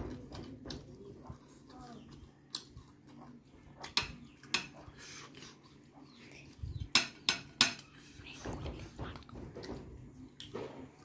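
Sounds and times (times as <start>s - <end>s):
chewing and lip smacks: 0.2s - 6.6s.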